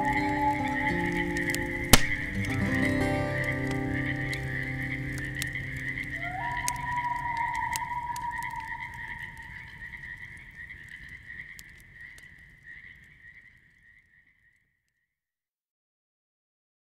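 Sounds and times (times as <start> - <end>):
long high held tone: 0.0 - 5.1, 6.1 - 9.3
chirring chorus: 0.0 - 12.2
sharp clicks: 1.0 - 9.5.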